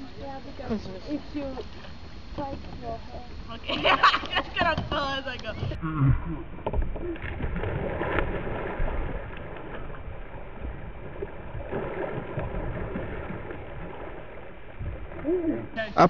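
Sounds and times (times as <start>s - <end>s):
wind rumble on microphone: 4.8s - 15.8s
water splashing around kayak: 6.4s - 16.0s.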